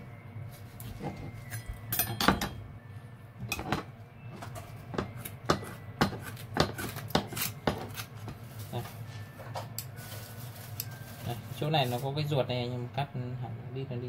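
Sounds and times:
shears snipping: 0:06.2 - 0:08.2.

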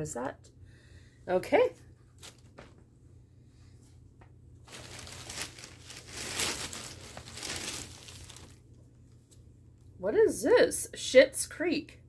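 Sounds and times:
packaging crinkling and rustling: 0:04.6 - 0:08.7.

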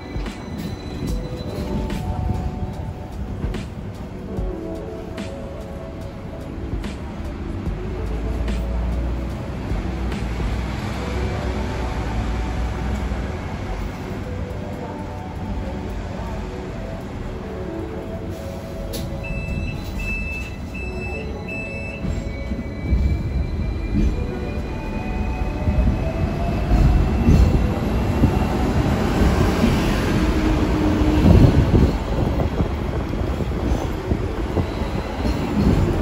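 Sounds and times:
wheels rumbling on rails: 0:00.0 - 0:36.0
tram motor whine rising: 0:16.0 - 0:36.0
short beeps: 0:19.2 - 0:24.2.

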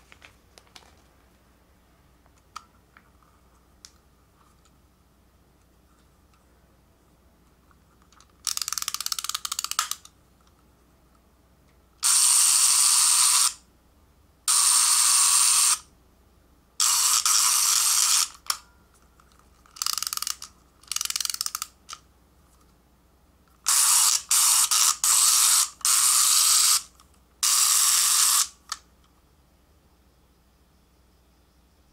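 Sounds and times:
miniature electric shaver buzzing: 0:12.0 - 0:13.6, 0:14.5 - 0:15.9, 0:16.8 - 0:18.6, 0:23.7 - 0:28.7.

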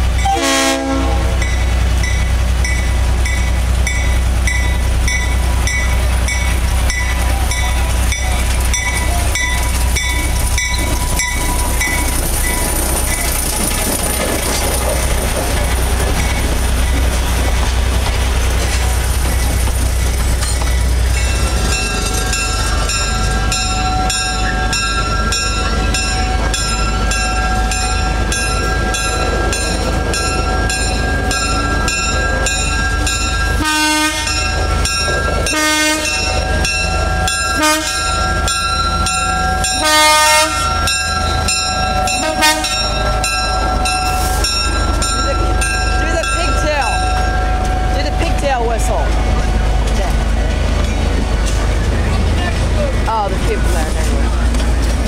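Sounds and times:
locomotive engine droning: 0:00.0 - 0:55.0
train wheels rolling: 0:00.0 - 0:55.0
short train horn blasts: 0:00.3 - 0:01.4, 0:33.6 - 0:34.4, 0:35.5 - 0:36.2, 0:37.6 - 0:38.0, 0:39.8 - 0:40.7, 0:42.2 - 0:42.8.

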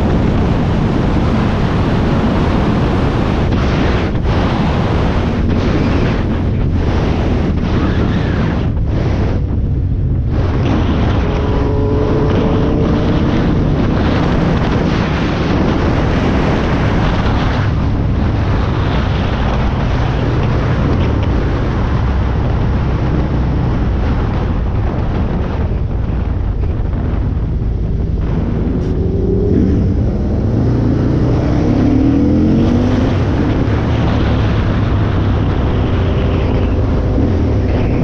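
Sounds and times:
wind rushing on microphone: 0:00.0 - 0:38.0
motorcycle engine running: 0:09.0 - 0:18.6.

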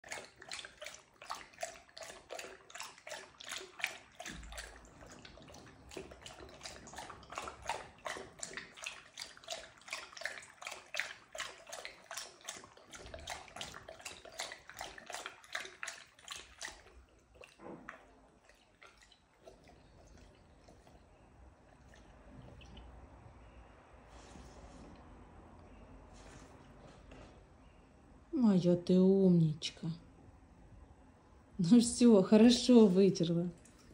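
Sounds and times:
dog lapping water from metal bowl: 0:00.0 - 0:23.5, 0:32.4 - 0:33.9.

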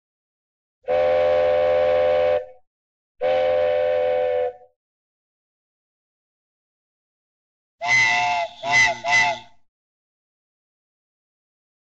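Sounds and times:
cartoon train whistle toots: 0:00.9 - 0:02.6, 0:03.2 - 0:04.7, 0:07.8 - 0:09.6.

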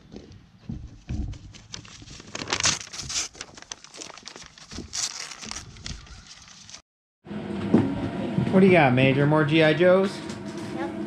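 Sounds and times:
paper crinkling and crumpling: 0:01.1 - 0:06.8.

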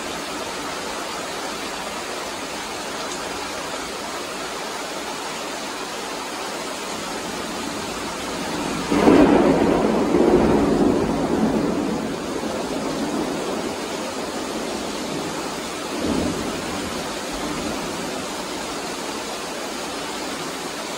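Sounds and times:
heavy rain falling: 0:00.0 - 0:20.9
thunder rumbling: 0:07.2 - 0:18.7.

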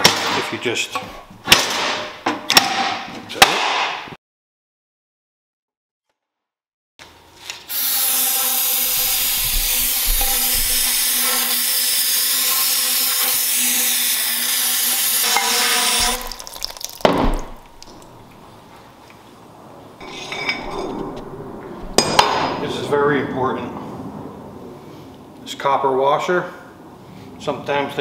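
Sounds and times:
loud thump: 0:17.0 - 0:17.6.

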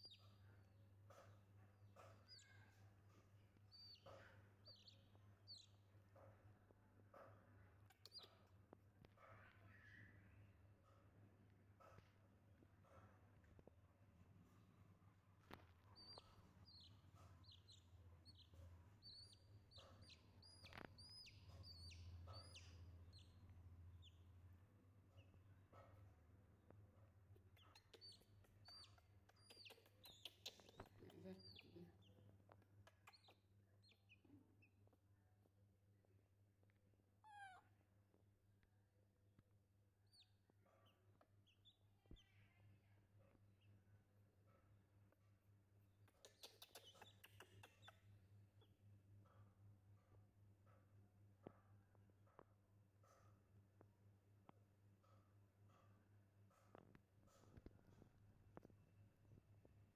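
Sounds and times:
chick peeping: 0:03.7 - 0:05.8, 0:07.9 - 0:08.4, 0:15.5 - 0:23.4, 0:27.4 - 0:32.2, 0:32.8 - 0:34.3, 0:46.1 - 0:48.0
baby macaque squealing: 0:27.6 - 0:31.8, 0:37.2 - 0:37.7.

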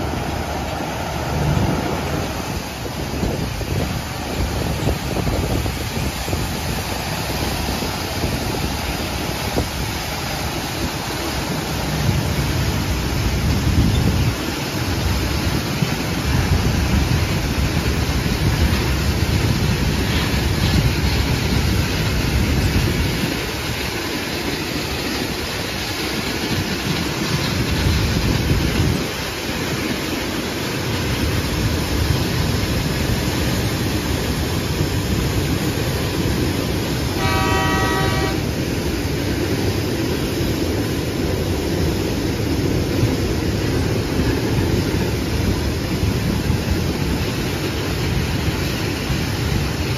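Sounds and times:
train cars rolling by rumbling: 0:00.0 - 0:49.9
locomotive horn: 0:37.1 - 0:38.6.

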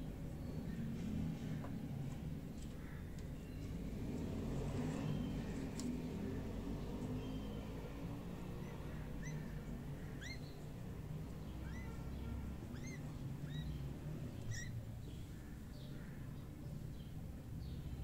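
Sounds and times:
small animal chirping: 0:10.1 - 0:10.6, 0:12.7 - 0:13.8, 0:14.4 - 0:14.8.

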